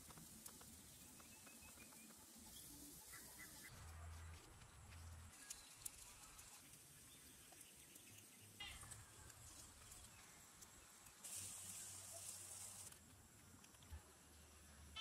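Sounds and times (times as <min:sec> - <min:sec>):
soft hiss: 0:04.3 - 0:14.9.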